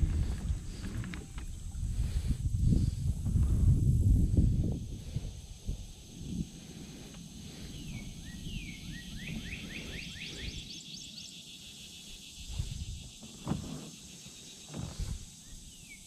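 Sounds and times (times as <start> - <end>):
songbird singing: 4.7 - 16.0.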